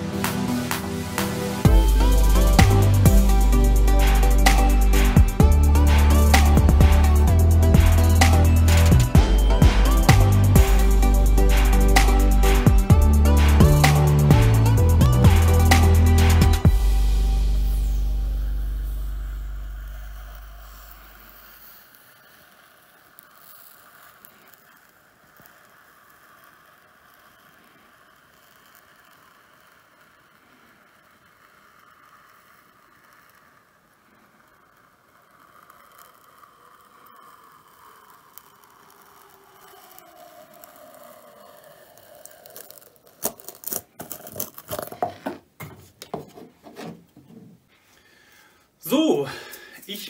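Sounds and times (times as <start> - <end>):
faint steady sound: 0.0 - 43.8
hot-wire cutter hissing through foam: 0.0 - 45.1
foam squeaky crunching and tearing: 41.8 - 45.4.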